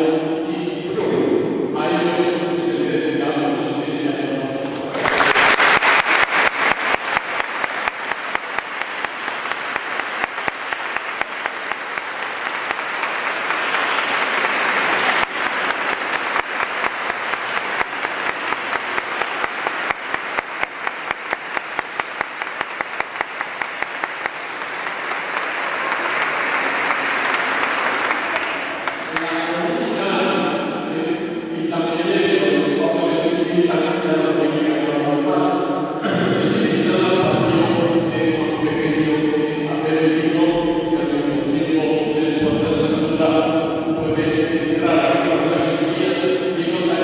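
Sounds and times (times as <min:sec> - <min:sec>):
congregation applauding: 0:04.6 - 0:29.8.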